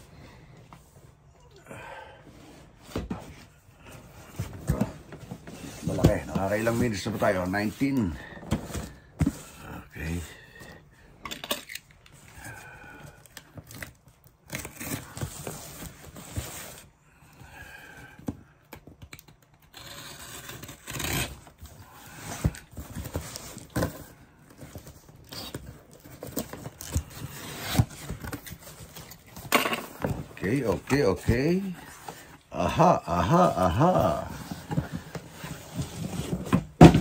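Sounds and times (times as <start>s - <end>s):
cardboard scraping and tearing: 19.7s - 24.1s.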